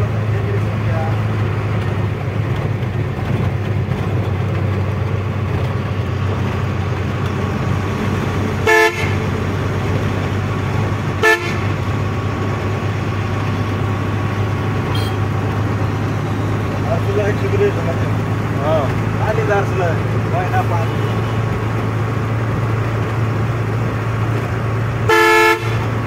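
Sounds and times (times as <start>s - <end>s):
truck engine humming: 0.0s - 26.0s
vehicle horn: 8.6s - 9.3s, 11.2s - 11.8s, 14.9s - 15.3s, 20.8s - 21.5s, 25.1s - 25.9s.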